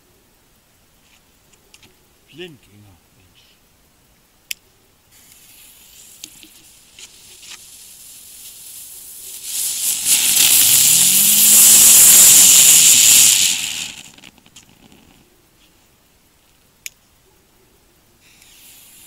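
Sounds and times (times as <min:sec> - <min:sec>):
small crackles: 0:04.5 - 0:17.0
ground spinner fireworks fizzing: 0:05.1 - 0:15.2, 0:18.2 - 0:19.0.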